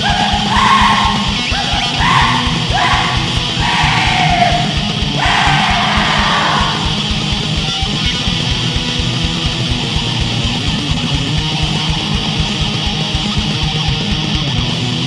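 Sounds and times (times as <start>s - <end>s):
harsh howled vocals: 0.0s - 7.2s
distorted guitars: 0.0s - 15.0s
fast drumming: 0.0s - 15.0s.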